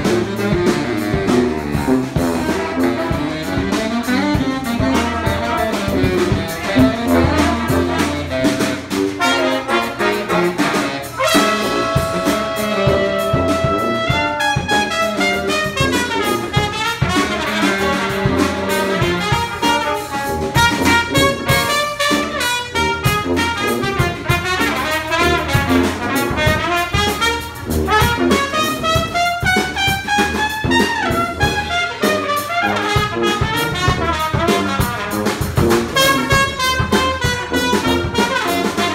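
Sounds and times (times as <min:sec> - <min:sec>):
brass band playing: 0:00.0 - 0:38.9.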